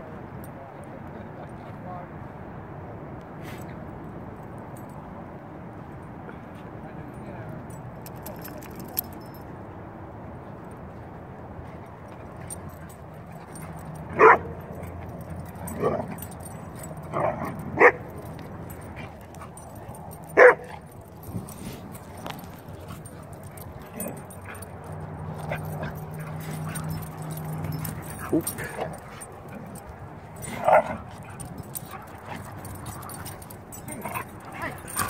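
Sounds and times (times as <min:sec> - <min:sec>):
dogs barking: 0:12.7 - 0:35.0.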